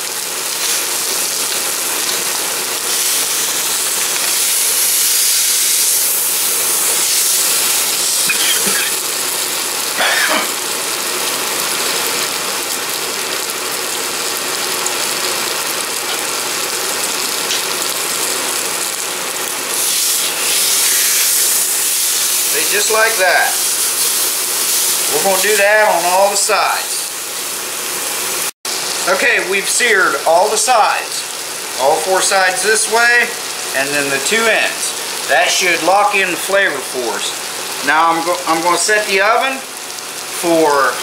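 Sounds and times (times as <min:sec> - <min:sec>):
meat sizzling in hot oil: 0:00.0 - 0:41.0.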